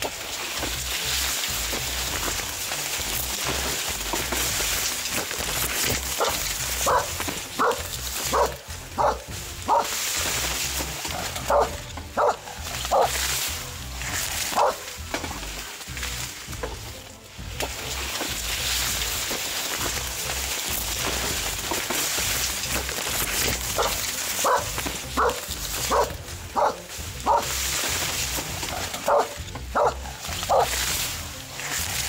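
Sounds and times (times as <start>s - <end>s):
maize leaves rustling: 0.0s - 32.0s
dog barking: 6.2s - 10.0s, 11.2s - 13.2s, 14.5s - 14.8s, 23.8s - 27.5s, 29.0s - 30.8s.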